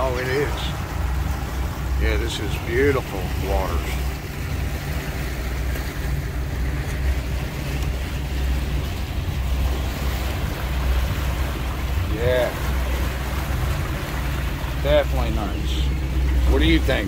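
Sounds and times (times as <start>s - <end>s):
boat engine hum: 0.0s - 17.0s
water rushing along hull: 0.0s - 17.0s
wind buffeting microphone: 0.0s - 17.0s.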